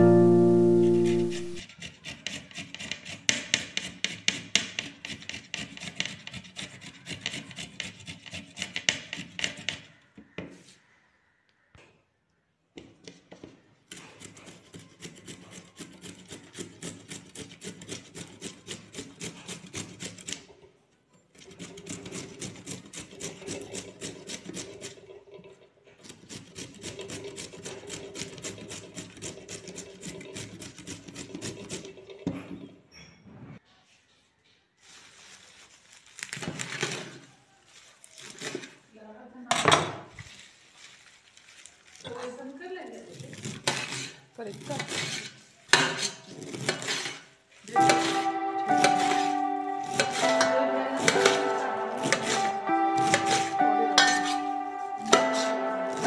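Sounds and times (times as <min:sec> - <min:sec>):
grater rasping: 0:00.8 - 0:09.9, 0:13.9 - 0:20.5, 0:21.4 - 0:25.2, 0:26.0 - 0:32.2, 0:43.1 - 0:47.3.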